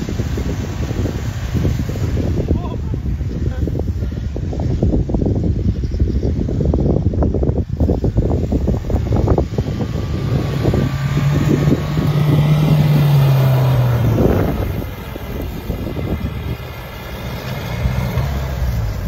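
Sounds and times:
suv engine revving hard: 8.2s - 19.0s.

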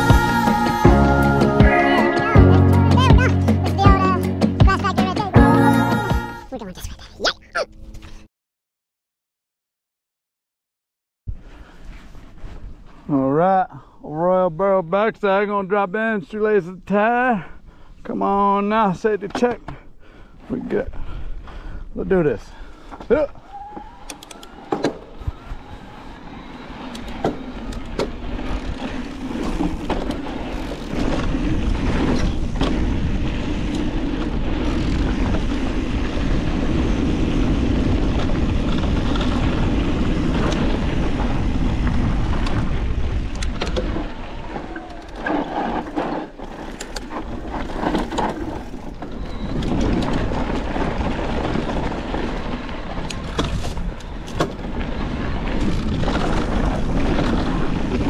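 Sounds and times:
bike tyres rumbling over dirt: 22.6s - 58.0s
bike knocks and rattles: 27.0s - 35.5s, 45.1s - 58.0s.

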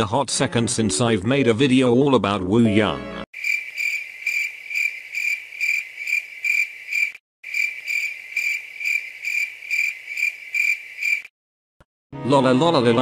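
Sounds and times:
crickets chirping: 3.4s - 11.3s.

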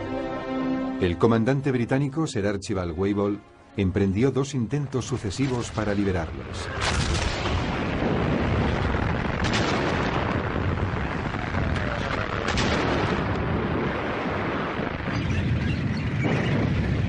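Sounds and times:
heavy rumble of battle: 5.1s - 17.0s
sharp gunshots: 5.3s - 15.6s.

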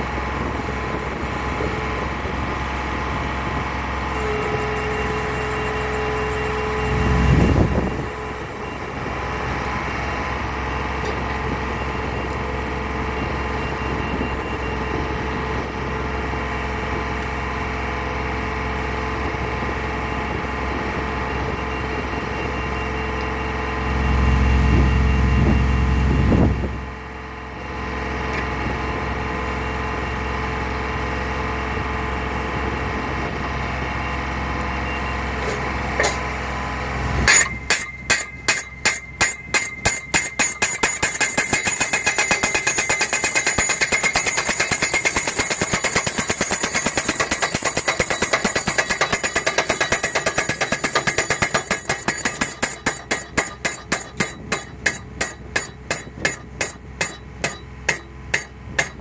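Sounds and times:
pile driver engine running: 0.0s - 59.0s
steady whine: 34.6s - 59.0s.

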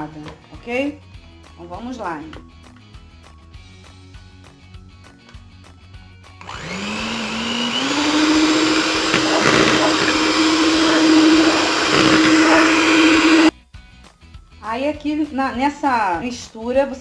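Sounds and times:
electric mixer motor whining: 6.4s - 13.5s.

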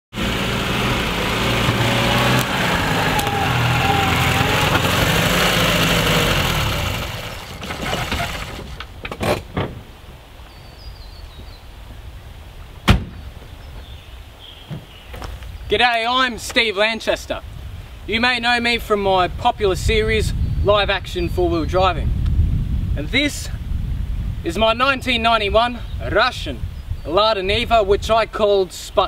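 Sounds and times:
car engine running: 0.1s - 8.9s
clunks: 1.4s - 5.4s, 6.9s - 9.9s
car door shutting: 12.8s - 13.3s.

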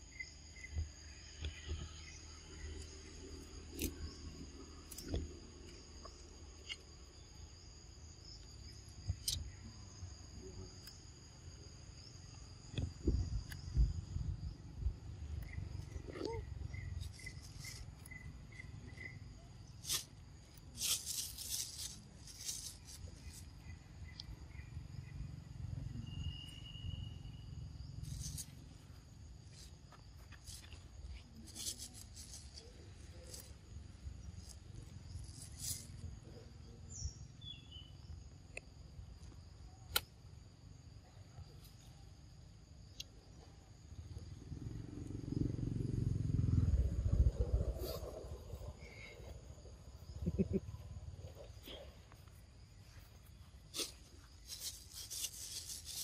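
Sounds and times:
high-pitched insect chorus: 0.0s - 56.0s
low rumble: 44.4s - 50.4s.

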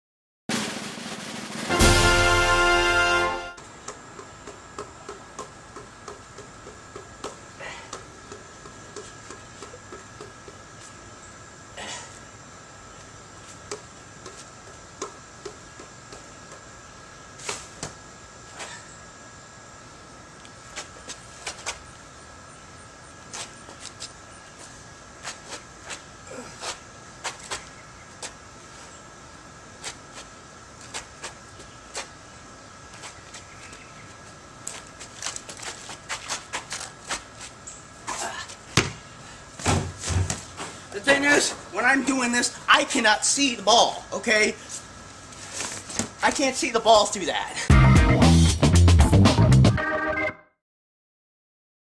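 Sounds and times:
steady high whine: 0.6s - 48.7s
faint high hum: 1.7s - 47.7s
hand slapping basketball: 3.9s - 10.6s, 38.8s - 39.0s
footsteps on concrete: 23.3s - 28.9s, 29.8s - 32.2s, 32.9s - 37.6s.

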